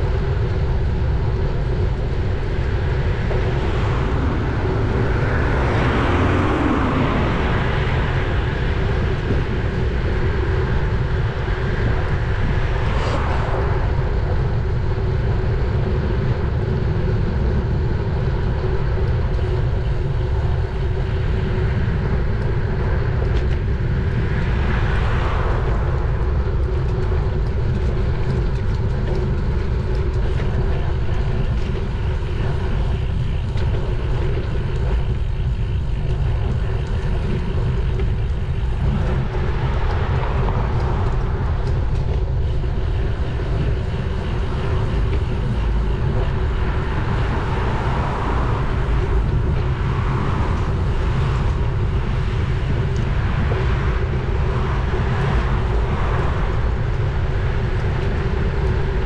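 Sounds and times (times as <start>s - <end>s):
wind buffeting microphone: 0.0s - 59.0s
motor vehicles passing: 3.2s - 9.8s.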